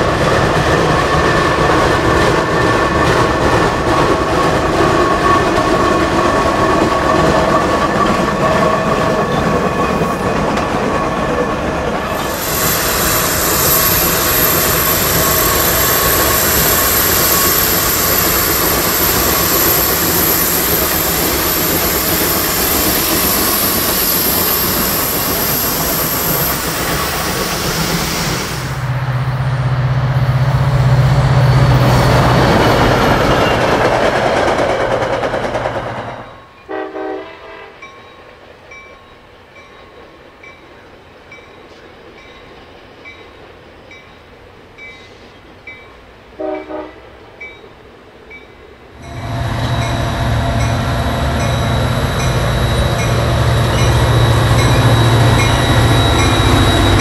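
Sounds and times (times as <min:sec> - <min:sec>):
steam locomotive exhaust beating: 0:00.0 - 0:37.6, 0:49.0 - 0:57.0
distant passing train: 0:00.0 - 0:57.0
train horn: 0:36.7 - 0:37.9, 0:46.4 - 0:47.2
deep steady whistle tone: 0:49.1 - 0:57.0.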